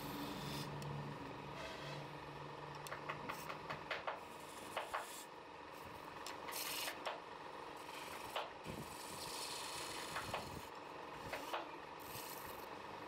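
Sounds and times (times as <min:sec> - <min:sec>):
lathe tool scraping wood: 0:07.8 - 0:10.7.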